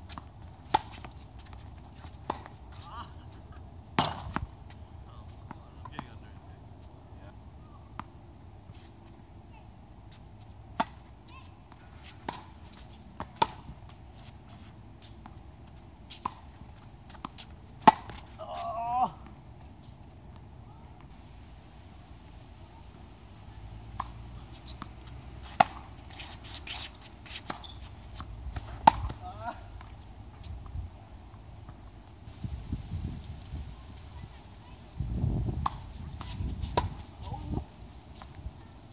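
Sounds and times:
insects droning: 0.0s - 38.9s
tennis balls bouncing on court: 0.1s - 6.4s, 10.2s - 14.2s, 15.1s - 19.4s, 23.9s - 30.4s, 35.6s - 37.5s
tennis balls struck by rackets: 0.2s - 2.7s, 3.9s - 4.6s, 10.7s - 11.3s, 12.2s - 13.8s, 16.0s - 18.3s, 23.9s - 29.9s, 35.6s - 37.1s.

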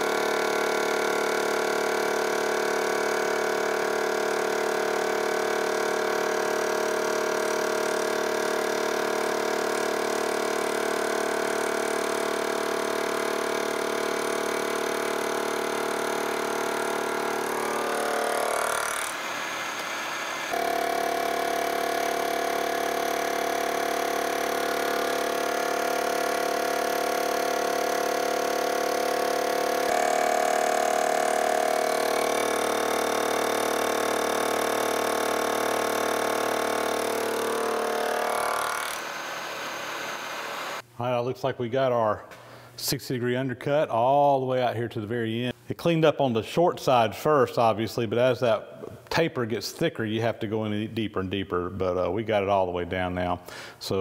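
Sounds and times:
milling machine humming: 0.0s - 40.8s.

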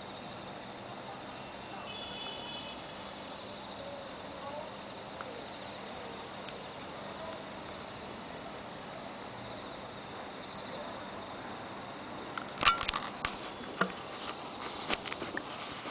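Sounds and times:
insects trilling: 0.0s - 15.9s.

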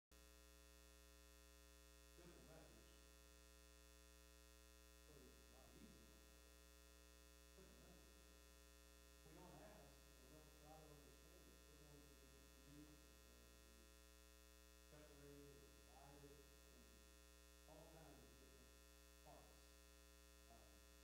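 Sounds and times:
electrical mains hum: 0.2s - 21.0s
faint distant talking: 2.2s - 3.0s, 5.0s - 6.2s, 7.5s - 8.2s, 9.2s - 14.0s, 14.9s - 17.0s, 17.6s - 19.6s.

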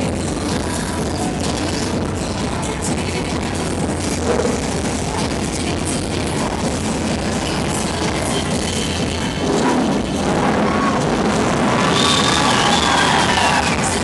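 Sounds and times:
loud rock music with drums: 6.2s - 14.0s.

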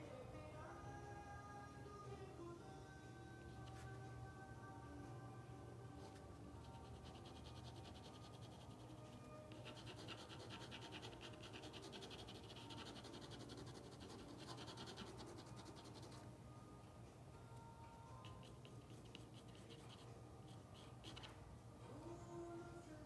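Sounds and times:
drawing tool scratching paper: 6.7s - 16.2s.

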